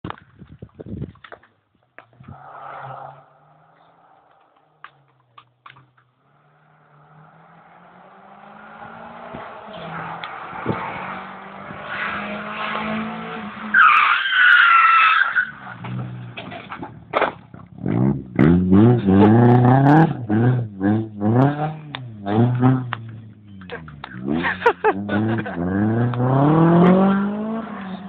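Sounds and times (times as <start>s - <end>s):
tyre squeal: 2.2s - 4.2s, 13.7s - 15.8s
rally car engine running: 17.6s - 28.0s.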